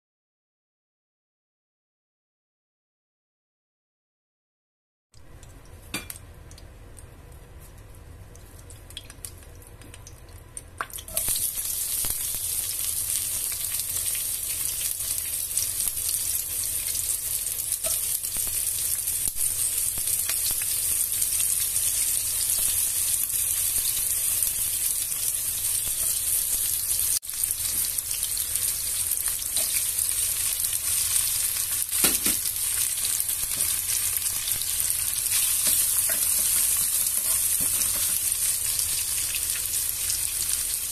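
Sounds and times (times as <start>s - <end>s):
small clicks of hot oil: 5.2s - 11.4s, 17.7s - 20.8s
onions and meat sizzling: 10.9s - 40.9s.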